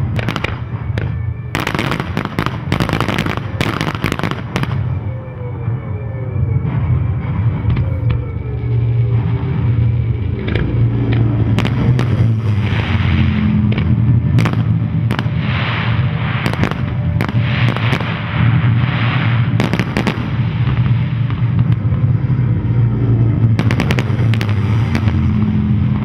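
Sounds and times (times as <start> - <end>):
fireworks banging: 0.0 - 5.5, 6.4 - 26.0
hissing crackle: 0.0 - 5.8, 6.4 - 26.0
steady low hum: 0.0 - 26.0.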